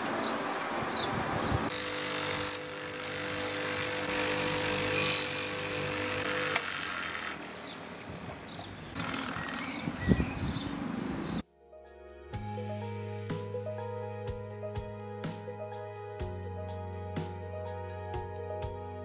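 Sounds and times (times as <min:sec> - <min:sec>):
metal rasping against grinding wheel: 0:01.7 - 0:07.8, 0:09.0 - 0:09.8
bench grinder motor hum: 0:01.7 - 0:10.0.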